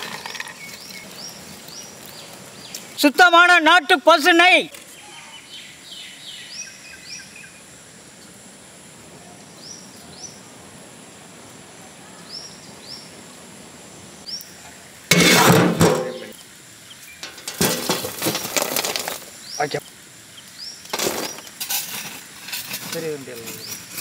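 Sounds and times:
rough clattering noise: 0.0s - 0.9s, 15.1s - 16.4s, 17.2s - 19.3s, 20.9s - 24.0s
birds chirping: 0.0s - 7.7s, 19.3s - 21.6s
steady outdoor hiss: 0.0s - 24.0s.

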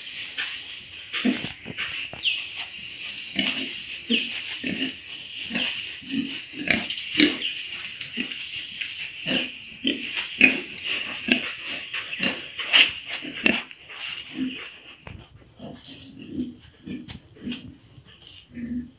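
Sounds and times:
pigs grunting: 3.2s - 18.9s.

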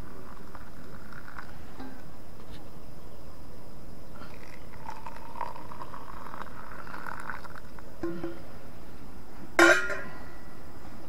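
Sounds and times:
water pouring into cup: 0.0s - 1.7s, 4.2s - 7.9s
short clink: 9.6s - 10.3s.

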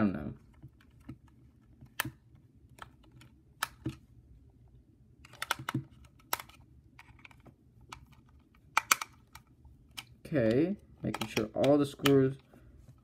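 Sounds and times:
plastic radio clicks and knocks: 5.3s - 8.1s, 11.0s - 12.2s.

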